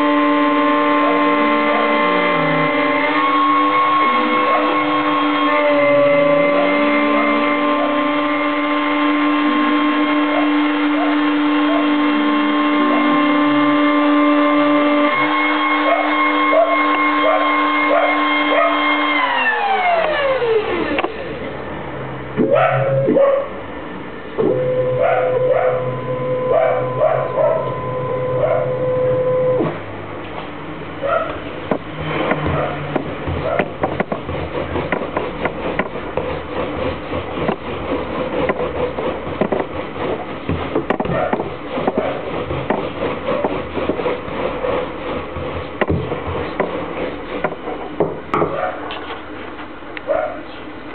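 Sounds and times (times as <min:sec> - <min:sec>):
router spindle whine: 0:00.0 - 0:21.8, 0:24.4 - 0:30.0
dog barking: 0:10.2 - 0:12.0, 0:15.8 - 0:18.8, 0:22.4 - 0:23.6, 0:25.0 - 0:25.9, 0:26.5 - 0:27.7, 0:28.4 - 0:28.8, 0:31.0 - 0:31.5, 0:32.5 - 0:33.8, 0:41.0 - 0:41.4, 0:48.4 - 0:48.9, 0:50.1 - 0:50.5.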